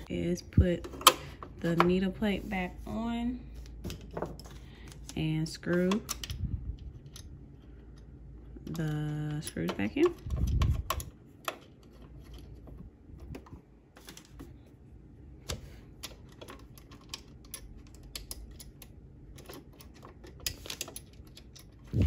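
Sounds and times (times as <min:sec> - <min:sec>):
small metal clicks and taps: 0:16.0 - 0:21.9.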